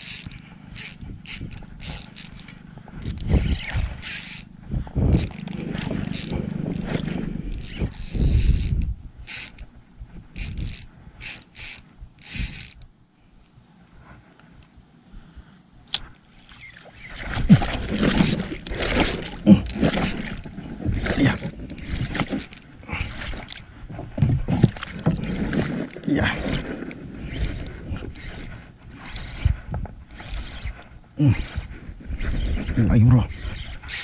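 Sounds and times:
fishing reel winding and clicking: 0:00.0 - 0:09.7, 0:10.4 - 0:13.6, 0:17.8 - 0:23.6, 0:25.9 - 0:32.7, 0:33.3 - 0:34.0
rustling noise: 0:13.8 - 0:14.7.

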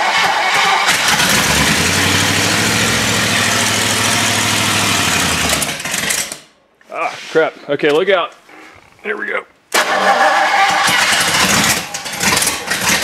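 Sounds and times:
engine cranking and running: 0:00.0 - 0:06.5, 0:09.8 - 0:13.0.

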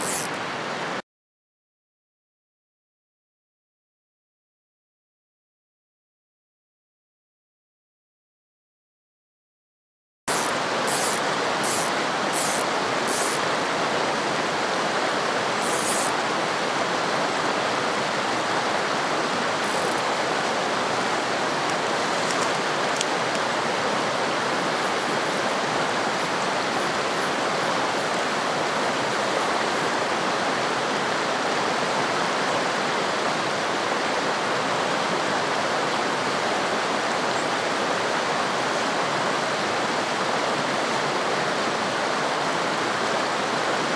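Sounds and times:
stream rushing over rocks: 0:00.0 - 0:01.0, 0:10.3 - 0:43.9.

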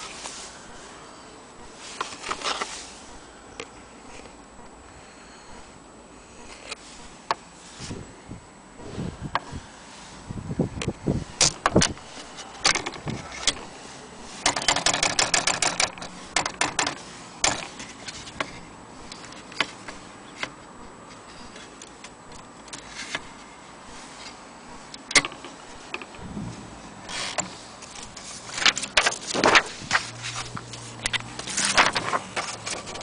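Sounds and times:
manual typewriter clacking: 0:11.4 - 0:13.7, 0:14.3 - 0:18.5, 0:25.0 - 0:26.3, 0:27.1 - 0:33.0.

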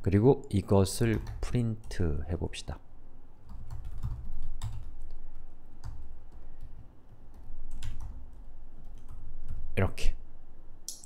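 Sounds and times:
typing on computer keyboard: 0:03.4 - 0:05.2, 0:05.8 - 0:09.6.

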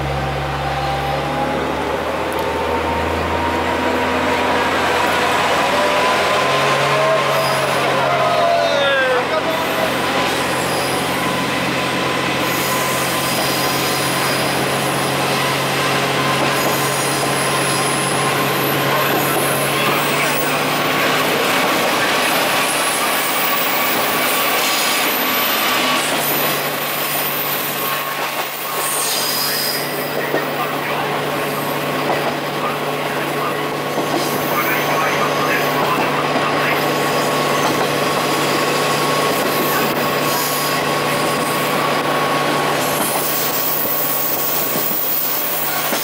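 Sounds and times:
diesel engine drone: 0:00.0 - 0:10.8
wheels rumbling on rail: 0:00.0 - 0:46.0.

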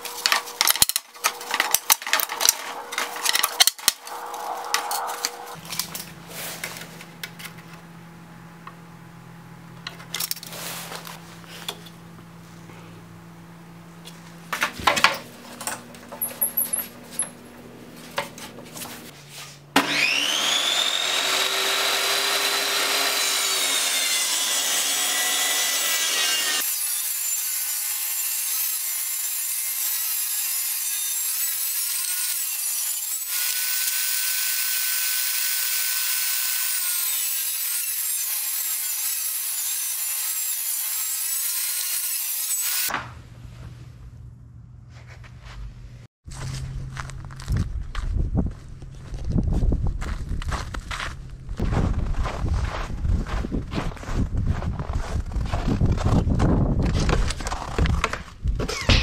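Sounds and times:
table saw cutting wood: 0:00.0 - 0:06.8, 0:19.8 - 0:42.9.

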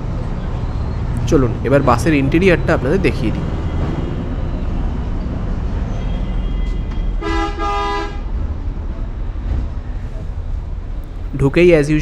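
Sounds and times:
low rumble of vehicles: 0:00.0 - 0:12.0
vehicle horn honking: 0:05.9 - 0:08.3.

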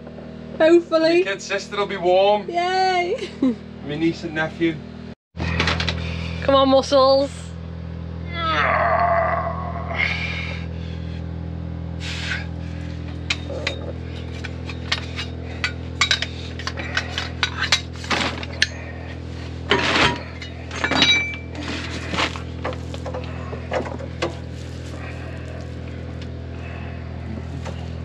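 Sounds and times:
generator humming: 0:00.0 - 0:28.0
metal tools clinking and tapping: 0:13.2 - 0:18.8, 0:19.7 - 0:24.5.

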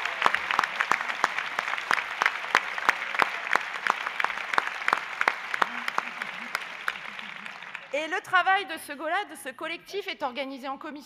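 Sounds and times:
audience clapping: 0:00.0 - 0:08.5.

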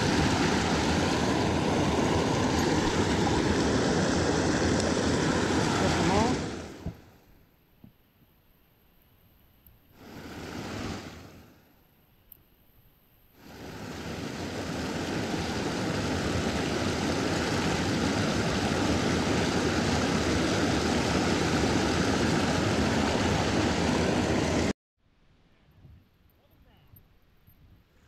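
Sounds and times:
water rushing over waterfall: 0:00.0 - 0:07.0, 0:10.0 - 0:11.5, 0:13.4 - 0:24.7.

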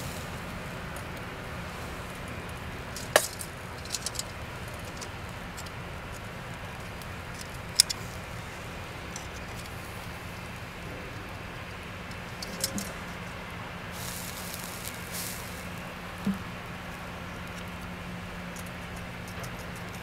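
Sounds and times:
faint steady hiss: 0:00.0 - 0:18.9
metal tongs clicking on grill grate: 0:02.9 - 0:08.0, 0:12.0 - 0:13.1, 0:18.5 - 0:20.0.

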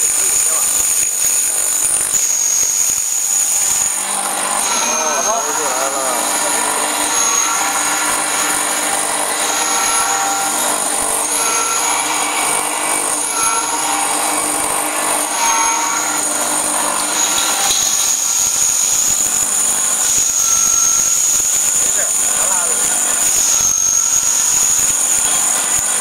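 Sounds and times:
grinding mill motor whine: 0:00.0 - 0:26.0.

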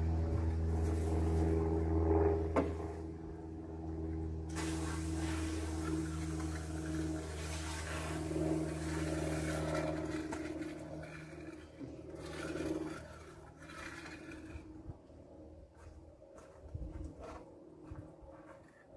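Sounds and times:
low mechanical hum: 0:00.0 - 0:18.9
rushing hiss: 0:04.5 - 0:06.3.

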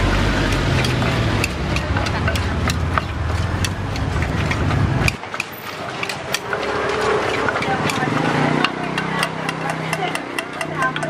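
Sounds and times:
low engine rumble: 0:00.0 - 0:11.0
pestle knocking in clay mortar: 0:00.0 - 0:11.0
knife tapping cutting ingredients: 0:00.1 - 0:11.0.

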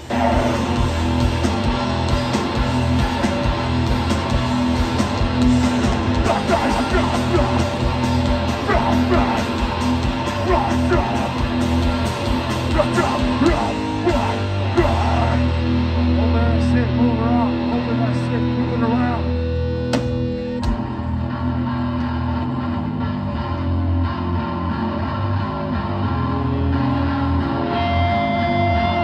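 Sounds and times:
shouted vocals: 0:00.0 - 0:01.3, 0:06.1 - 0:16.8
fast heavy drumming: 0:00.0 - 0:15.6
bass guitar: 0:00.0 - 0:29.0
distorted electric guitars: 0:00.0 - 0:29.0.

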